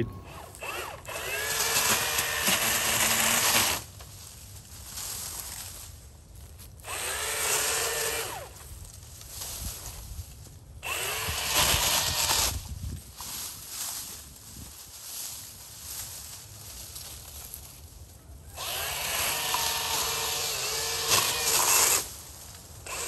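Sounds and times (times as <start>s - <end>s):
electric pole saw cutting brush: 0.0s - 4.0s, 6.8s - 8.6s, 10.8s - 12.8s, 18.5s - 23.0s.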